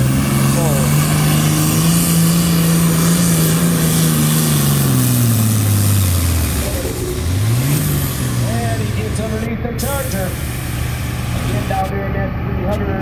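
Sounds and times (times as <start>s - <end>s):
tractor diesel engine revving: 0.0s - 13.0s.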